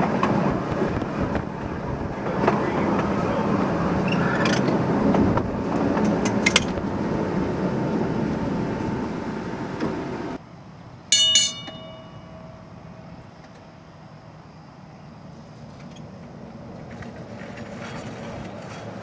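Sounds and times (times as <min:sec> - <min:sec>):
wheels clicking over rail joints: 0:00.0 - 0:06.9, 0:15.6 - 0:19.0
streetcar rumbling on track: 0:00.0 - 0:10.9
loud ringing strikes: 0:11.1 - 0:13.2.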